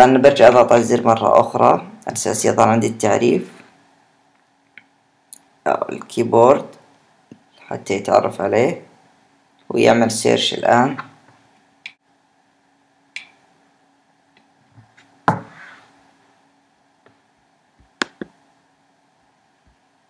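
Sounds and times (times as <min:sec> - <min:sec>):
faint hum: 0:00.0 - 0:20.0
knock and rustle: 0:14.8 - 0:15.6.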